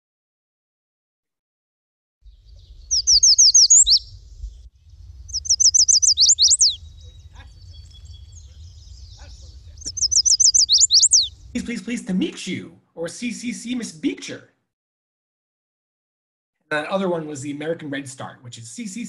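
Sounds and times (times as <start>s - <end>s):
warbler song: 2.2s - 11.7s
faint low rumble: 3.7s - 12.2s.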